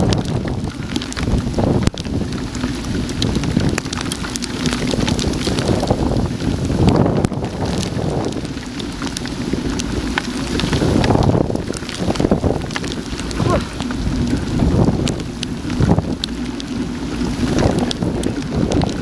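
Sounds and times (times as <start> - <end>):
heavy rain: 0.0 - 19.0
raindrops ticking on camera: 0.0 - 19.0
wind buffeting microphone: 0.0 - 19.0.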